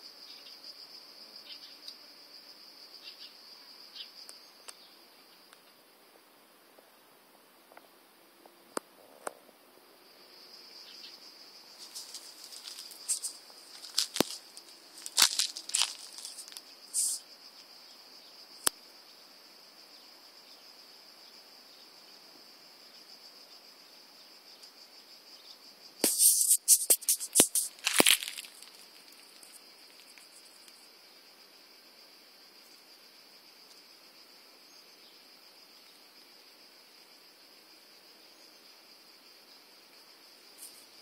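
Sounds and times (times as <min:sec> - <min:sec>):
insects chirring: 0:00.0 - 0:41.0
sharp scrapes and rustles: 0:11.8 - 0:17.2, 0:26.0 - 0:30.6.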